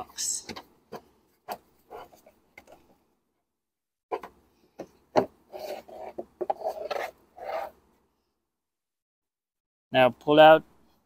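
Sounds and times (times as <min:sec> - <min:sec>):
plastic rubbing and scraping: 0:00.4 - 0:03.0, 0:04.1 - 0:07.9.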